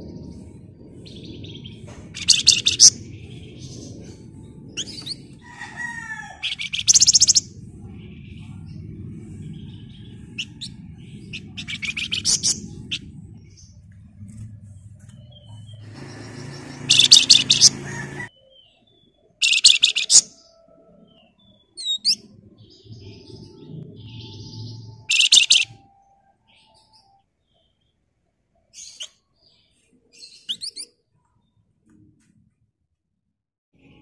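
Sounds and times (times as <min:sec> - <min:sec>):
low hum: 0:00.0 - 0:18.3, 0:22.2 - 0:27.3
thin rising bird whistles: 0:24.5 - 0:27.2.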